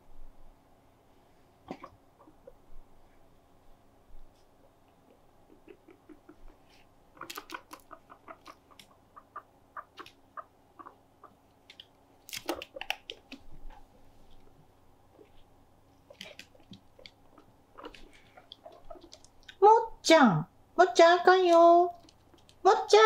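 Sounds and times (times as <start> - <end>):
guinea pigs nibbling plastic: 4.2 - 19.6, 21.3 - 23.0.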